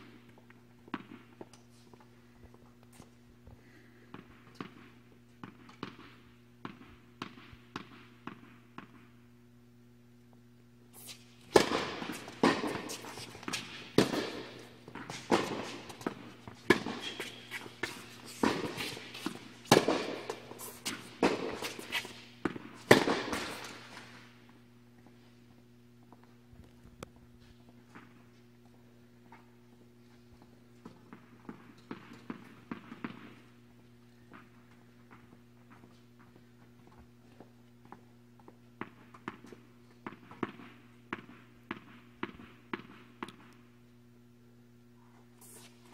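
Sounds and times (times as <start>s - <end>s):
steady electrical hum: 0.0s - 45.9s
racket hitting tennis ball: 11.0s - 24.3s
tennis ball bouncing: 11.1s - 24.2s.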